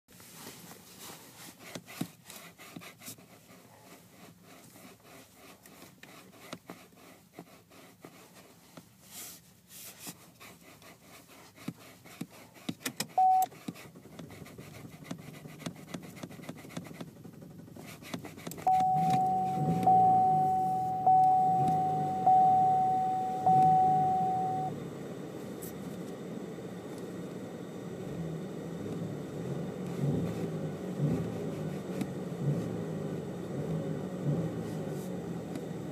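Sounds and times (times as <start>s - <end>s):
car engine starting and idling: 12.9s - 35.9s
car warning chime dinging: 13.2s - 13.5s, 18.6s - 24.8s
short beep: 13.2s - 13.5s, 18.7s - 24.7s.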